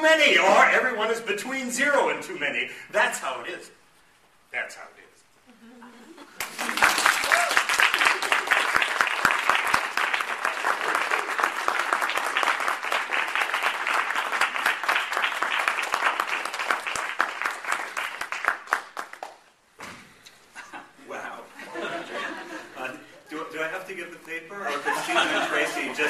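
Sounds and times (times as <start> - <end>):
audience applauding: 6.4 - 19.5.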